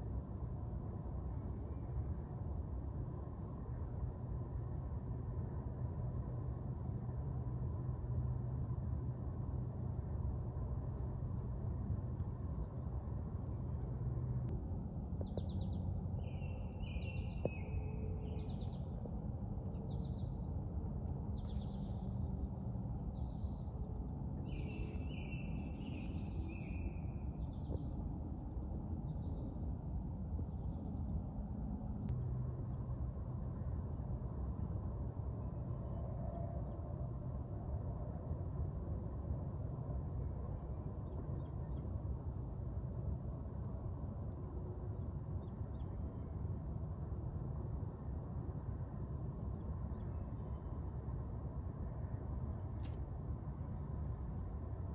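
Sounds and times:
low steady rumble: 0.0 - 54.9
insects trilling: 14.5 - 32.0.

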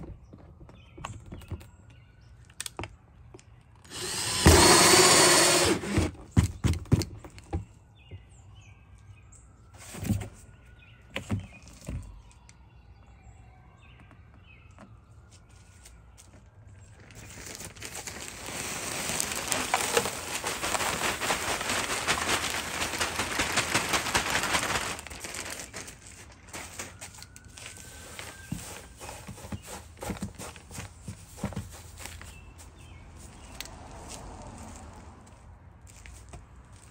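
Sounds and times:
wood shavings pouring: 3.9 - 5.8, 17.1 - 30.3.

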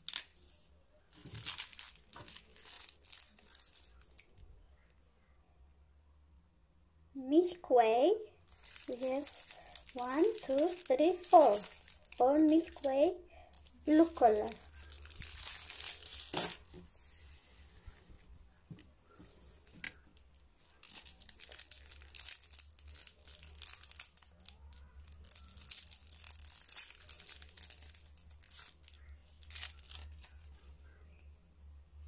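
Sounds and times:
plastic wrappers crackling: 0.0 - 4.4, 8.4 - 16.9, 19.6 - 31.3.

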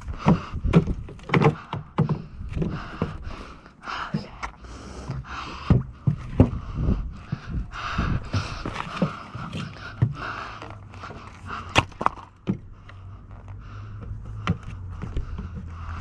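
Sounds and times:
bike rattling on wooden ramp: 0.0 - 3.4
heavy breathing: 0.0 - 16.0.

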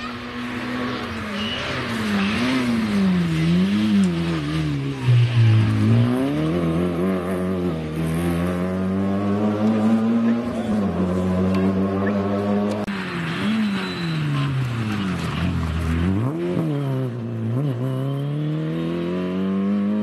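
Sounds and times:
rally car engine revving: 0.0 - 20.0.

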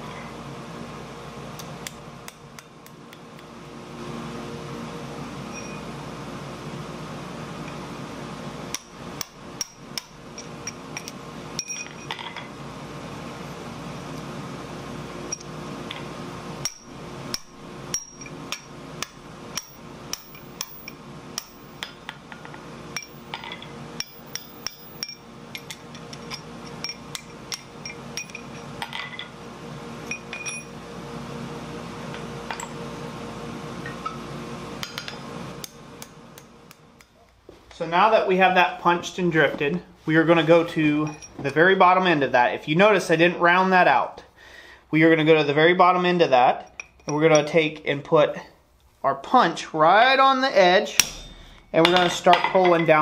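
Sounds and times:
steady hum: 0.0 - 53.0
hammer striking metal on anvil: 8.7 - 10.2, 16.6 - 22.0, 23.0 - 28.4, 50.9 - 52.8.

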